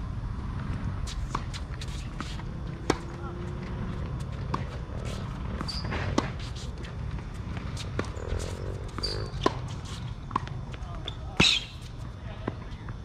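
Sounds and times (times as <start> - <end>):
tennis shoes squeaking on court: 1.0 - 12.1
racket hitting tennis ball: 1.1 - 3.2, 4.0 - 10.5.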